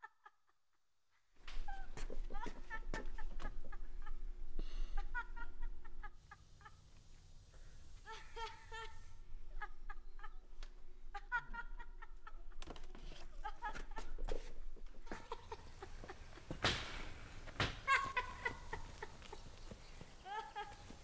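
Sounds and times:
loud thump: 16.5s - 17.9s.

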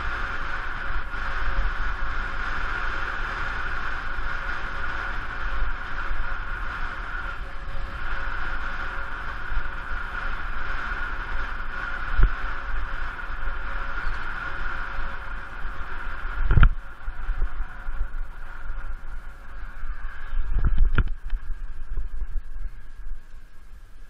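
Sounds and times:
steady whine: 0.0s - 24.0s
wind rushing over microphone: 0.0s - 24.0s.

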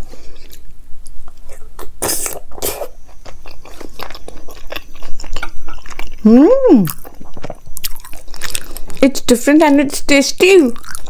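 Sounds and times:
wet chewing mouth clicks: 0.4s - 9.1s.

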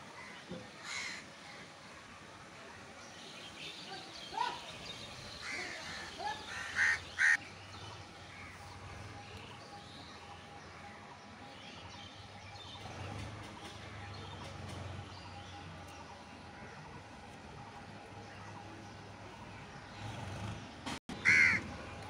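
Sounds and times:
crows cawing: 0.2s - 1.2s, 5.4s - 7.4s, 21.2s - 21.6s.

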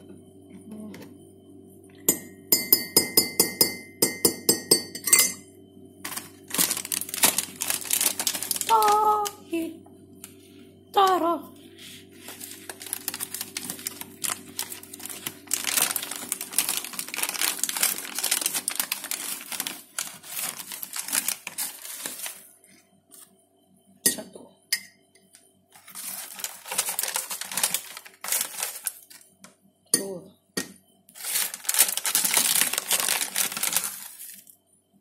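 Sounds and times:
plastic packets crinkling: 6.0s - 9.6s, 12.2s - 22.5s, 25.8s - 29.3s, 31.2s - 34.5s.

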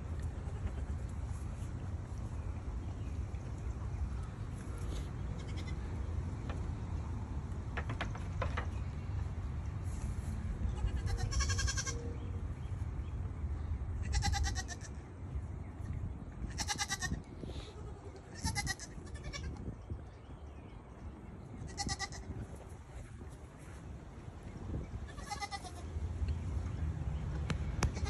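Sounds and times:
goats bleating: 25.1s - 25.8s.

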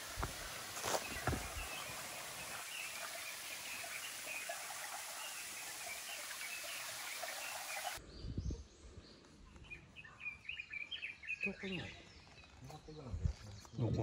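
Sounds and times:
stream water rushing: 0.0s - 8.0s.

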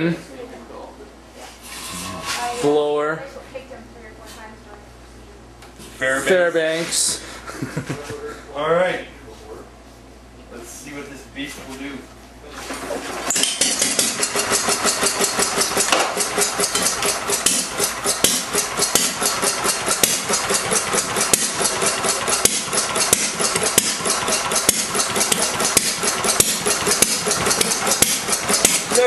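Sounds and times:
stationary engine clattering: 12.8s - 29.0s
flywheel spinning: 13.1s - 29.0s.

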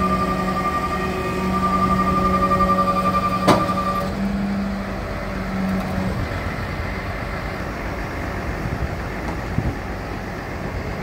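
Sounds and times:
hydraulic system whining: 0.0s - 10.8s
truck engine running: 0.0s - 11.0s
sharp clunk: 3.4s - 4.1s.

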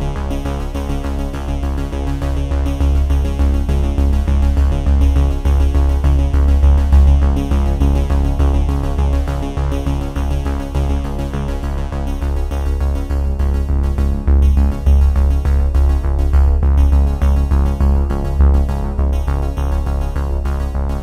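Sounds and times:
electronic music with heavy bass: 0.0s - 21.0s.

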